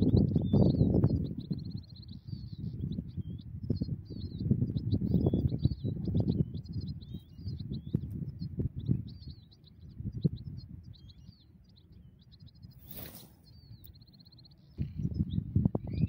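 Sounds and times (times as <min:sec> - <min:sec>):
birds twittering: 0:00.0 - 0:16.0
wind buffeting microphone: 0:00.0 - 0:16.0
brief rushing hiss: 0:12.8 - 0:13.5.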